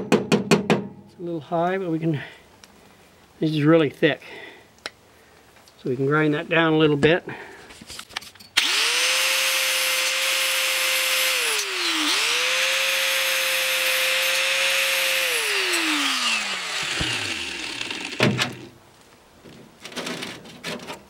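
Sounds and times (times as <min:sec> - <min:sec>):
knocks: 0:00.0 - 0:01.0
electric grinder grinding metal: 0:08.6 - 0:18.7.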